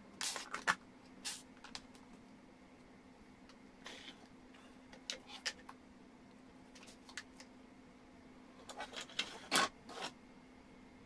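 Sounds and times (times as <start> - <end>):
plastic parts clattering: 8.7 - 10.1.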